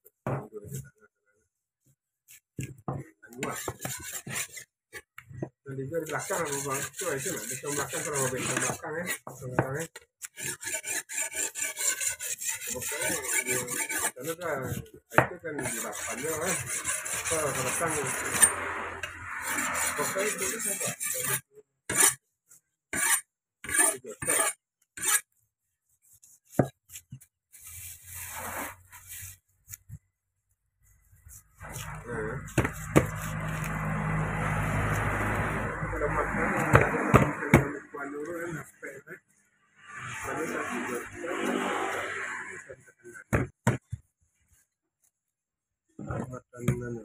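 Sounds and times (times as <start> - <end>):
knife scraping fish scales: 3.3 - 5.1, 6.0 - 14.9, 15.6 - 25.4, 26.0 - 29.9, 30.9 - 35.4.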